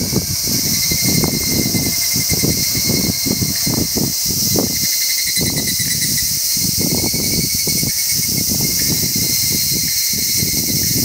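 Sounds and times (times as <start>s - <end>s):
low rumbling: 0.0s - 7.6s
cicada calling: 0.0s - 11.0s
high insect hiss: 0.0s - 11.0s.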